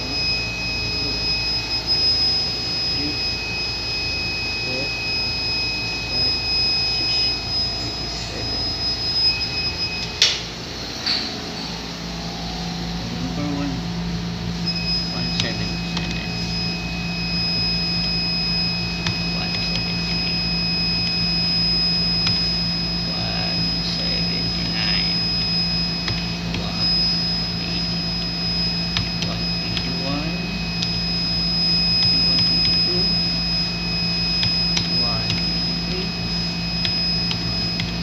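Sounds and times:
laboratory machinery hum: 0:00.0 - 0:38.0
thin high whine: 0:00.0 - 0:38.0.

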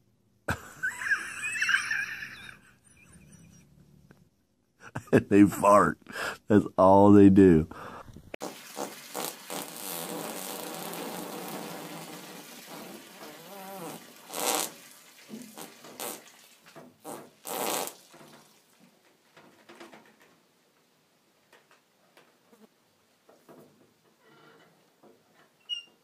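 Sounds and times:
horse passing gas: 0:08.1 - 0:16.3, 0:17.0 - 0:18.1.

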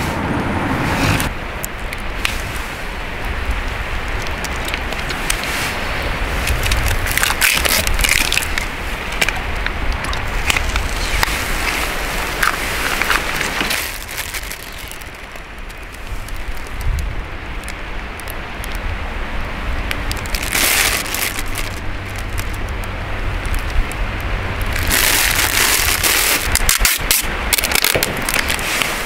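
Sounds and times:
steady low rumble: 0:00.0 - 0:29.0
plastic packaging crinkling: 0:06.4 - 0:17.0, 0:19.9 - 0:24.0, 0:24.6 - 0:29.0.

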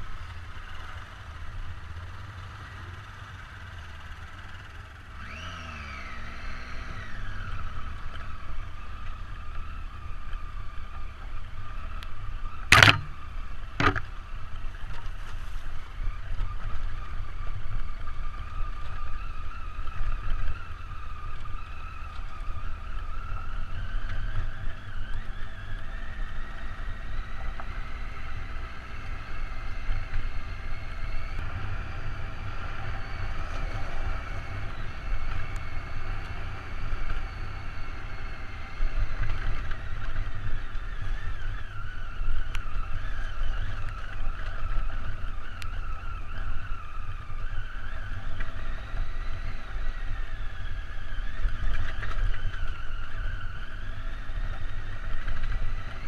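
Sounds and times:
motorcycle engine running: 0:00.0 - 0:56.0
wind and road noise: 0:00.0 - 0:56.0
sharp knocks: 0:12.7 - 0:13.2.

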